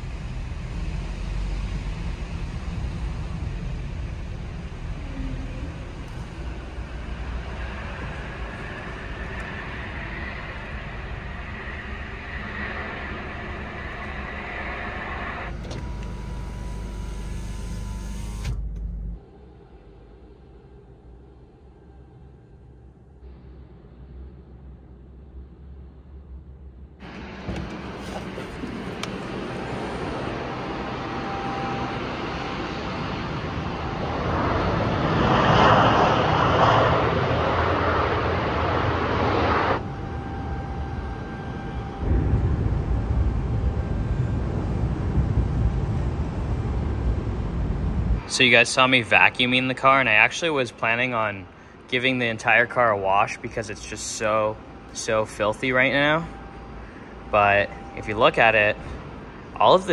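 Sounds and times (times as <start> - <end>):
vacuum hose rushing roar: 0.0 - 18.6, 27.0 - 59.9
thin motor whine: 0.0 - 20.8, 27.0 - 35.1, 37.6 - 59.9
motor humming: 0.2 - 19.6, 27.0 - 32.2.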